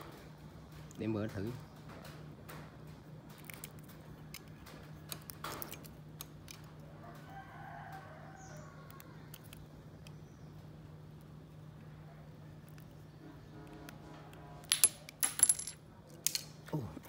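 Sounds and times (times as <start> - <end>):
steady low hum: 0.0 - 17.0
small clicks and scrapes: 3.3 - 8.0, 8.9 - 11.3
rooster crowing: 6.9 - 9.3.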